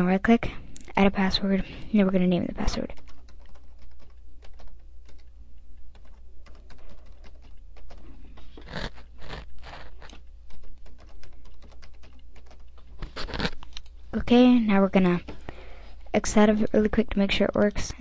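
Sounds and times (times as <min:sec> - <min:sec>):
keyboard keys clicking: 0:02.7 - 0:05.3, 0:05.9 - 0:08.5, 0:09.6 - 0:13.0.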